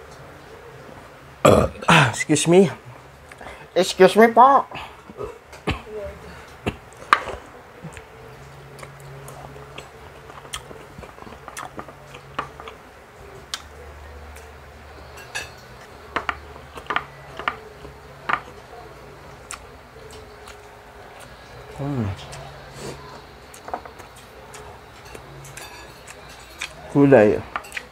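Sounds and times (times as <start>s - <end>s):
faint low hum: 0.0s - 27.9s
chewing: 4.8s - 27.9s
cutlery clicking against a plate: 15.1s - 18.6s, 23.5s - 26.8s, 27.5s - 27.9s.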